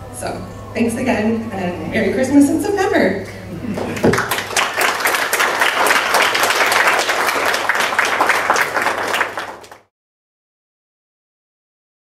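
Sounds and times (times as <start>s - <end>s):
audience applauding: 3.7s - 9.9s.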